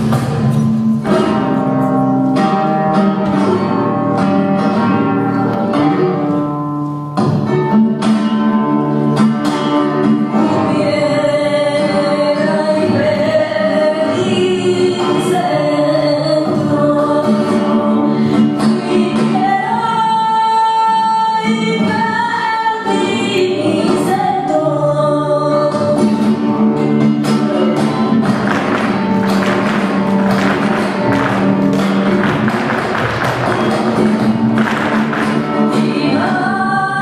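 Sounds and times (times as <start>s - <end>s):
flamenco guitar: 0.0s - 37.0s
person singing: 10.2s - 26.5s, 35.1s - 37.0s.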